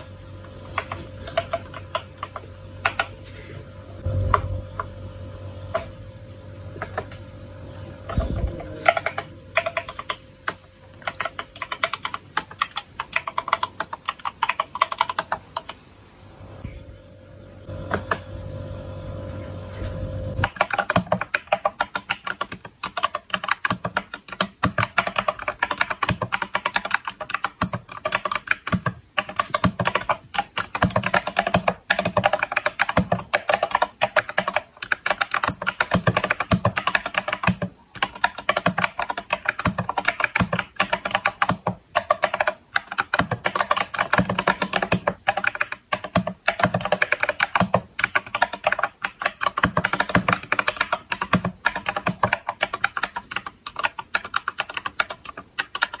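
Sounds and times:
mechanical keyboard typing: 0.8 - 3.1, 8.8 - 15.8, 20.4 - 56.0.

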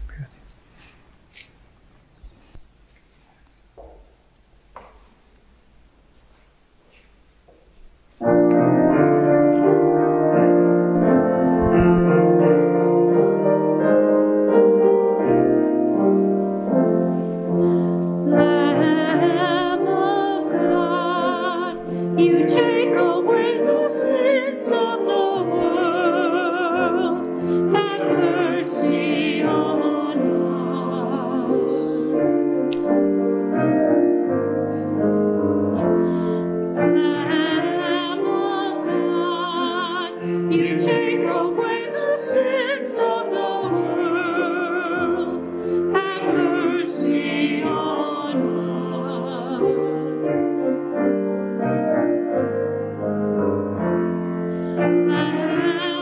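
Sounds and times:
piano chords: 8.2 - 56.0
person singing with vibrato: 18.1 - 32.7, 35.8 - 50.9, 54.8 - 56.0.

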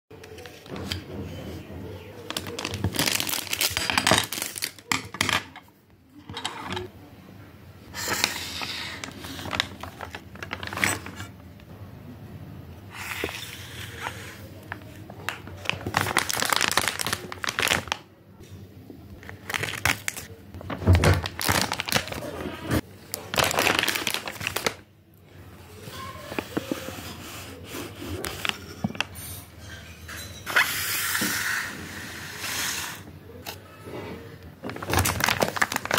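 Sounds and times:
plastic packaging crinkling: 2.3 - 5.2, 9.0 - 11.3, 13.3 - 18.1, 19.1 - 24.9, 34.6 - 35.9.

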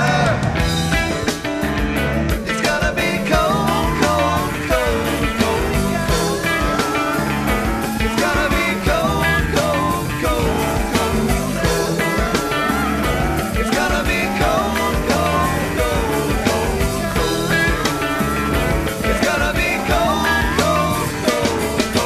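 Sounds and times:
rock music: 0.0 - 22.0.

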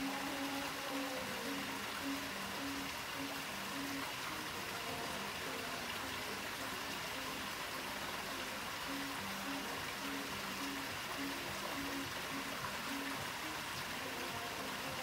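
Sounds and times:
faint background music: 0.0 - 15.0.

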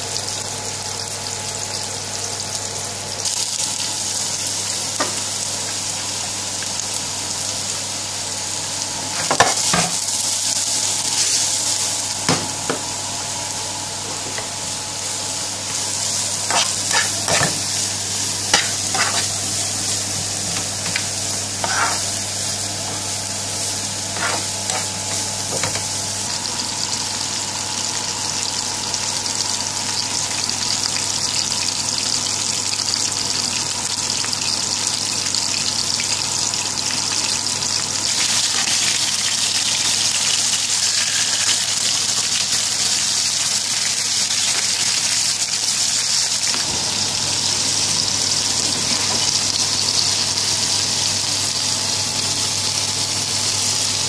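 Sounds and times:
onions sizzling in oil: 0.0 - 54.0
metal spoon scraping a pan: 16.4 - 17.7, 18.5 - 19.4, 21.6 - 22.1, 24.1 - 25.8.

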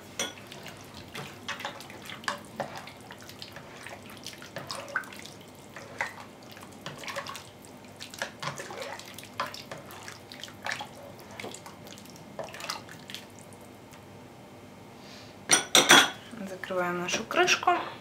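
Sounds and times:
soup sloshing and splashing: 0.4 - 13.7.

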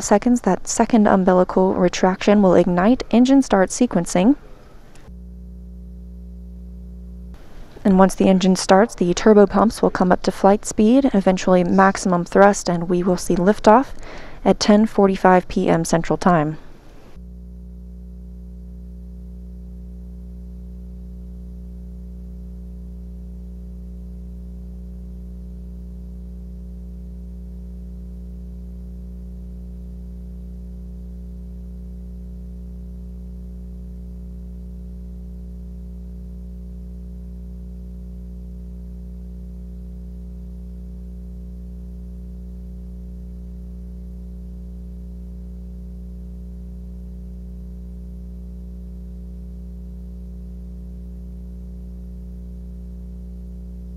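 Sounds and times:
low electrical hum: 0.0 - 53.9
faint hiss: 7.4 - 7.9.

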